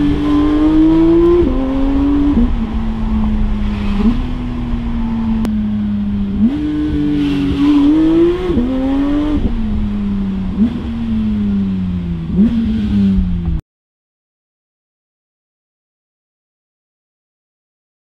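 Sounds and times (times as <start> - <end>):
car engine revving from cabin: 0.0 - 4.7, 6.3 - 13.6.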